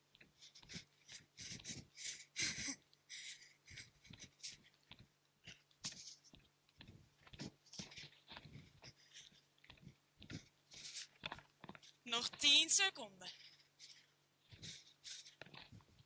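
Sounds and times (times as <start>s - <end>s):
faint breathing: 0.4s - 4.8s, 7.4s - 11.2s, 13.3s - 15.9s.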